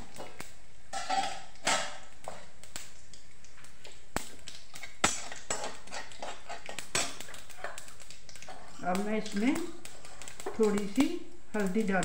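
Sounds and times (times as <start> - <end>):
spoon scraping metal pan: 0.9 - 2.4, 5.1 - 7.8.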